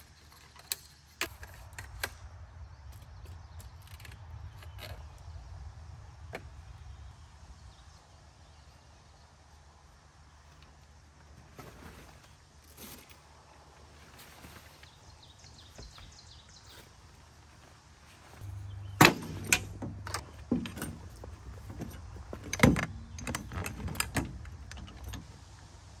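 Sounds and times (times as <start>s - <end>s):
metal poles clattering: 18.4s - 25.3s.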